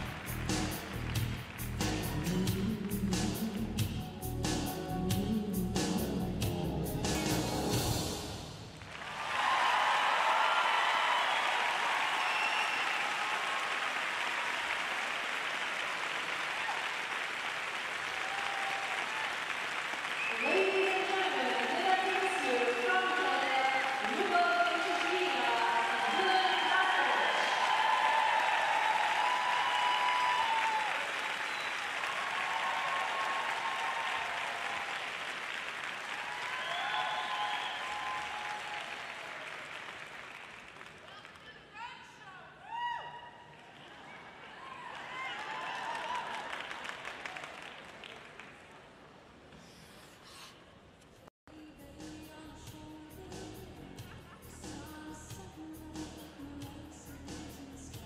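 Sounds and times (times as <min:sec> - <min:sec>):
crowd applauding: 0:00.0 - 0:02.4, 0:08.7 - 0:41.8, 0:43.5 - 0:49.0
faint cheers and whistles: 0:09.2 - 0:13.7, 0:18.1 - 0:21.2, 0:25.4 - 0:35.0, 0:36.1 - 0:39.6.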